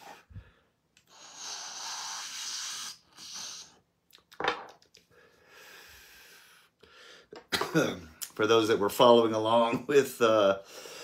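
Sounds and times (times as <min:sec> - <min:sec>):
hissing inhale through glass pipe: 0:01.0 - 0:03.8
sharp exhale: 0:01.1 - 0:03.8.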